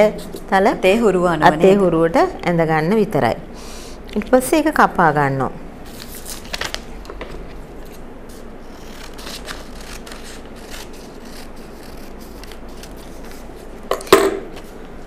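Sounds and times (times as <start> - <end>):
paper rustling: 5.9 - 13.8
shears snipping paper: 7.9 - 13.8.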